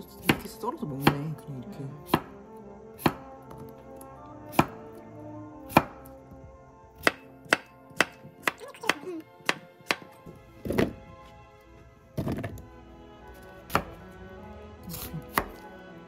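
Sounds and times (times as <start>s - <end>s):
knife slicing cucumber on board: 2.0s - 2.3s, 13.7s - 14.0s, 14.9s - 15.6s.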